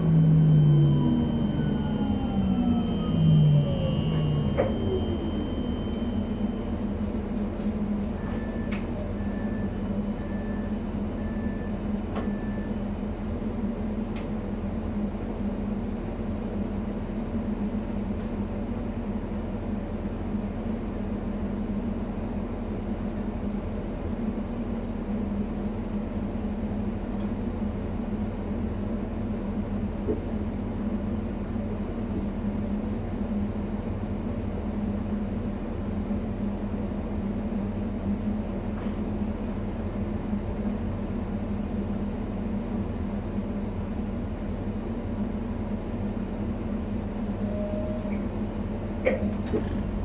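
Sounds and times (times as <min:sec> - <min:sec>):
electric train humming: 0:00.0 - 0:10.2
short high beeps: 0:00.4 - 0:08.8.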